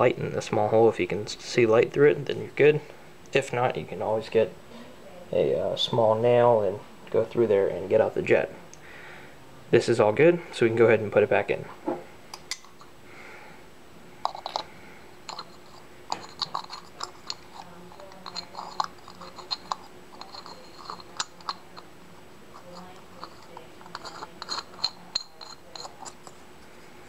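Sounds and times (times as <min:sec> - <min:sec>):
small metallic clicks and scrapes: 0:15.3 - 0:21.9, 0:22.6 - 0:26.8.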